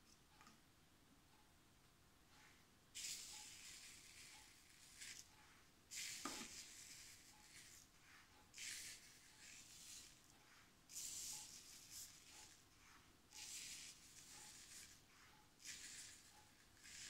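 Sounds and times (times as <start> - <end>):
salt sprinkling rustles: 5.9 - 7.9, 8.5 - 10.2.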